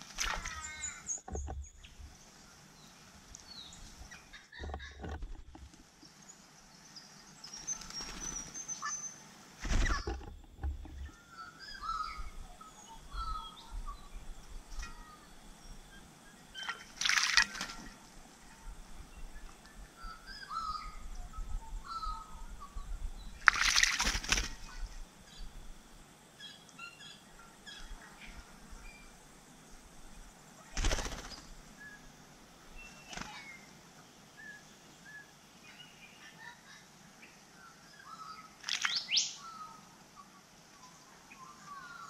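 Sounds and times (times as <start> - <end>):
bird splashing in water: 0.0 - 0.6, 16.6 - 18.0, 23.4 - 24.8, 38.6 - 39.1
fluttering wings: 0.0 - 0.7, 7.4 - 8.6, 9.6 - 11.1, 16.6 - 18.1, 23.4 - 25.0, 30.6 - 31.6, 32.8 - 33.7
faint bird chirps: 0.3 - 5.0, 11.0 - 16.9, 17.5 - 23.5, 30.6 - 42.0.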